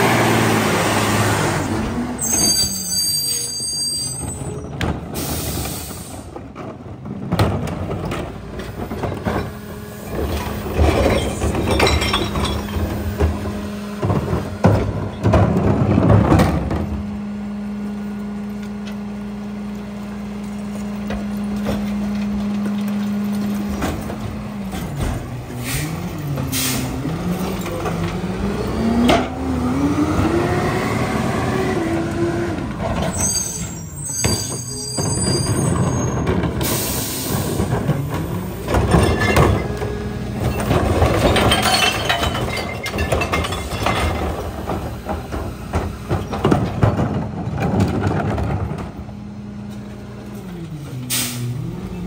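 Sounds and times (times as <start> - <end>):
garbage truck engine: 0.0 - 52.0
brief high squeal: 2.2 - 4.6, 33.2 - 36.2.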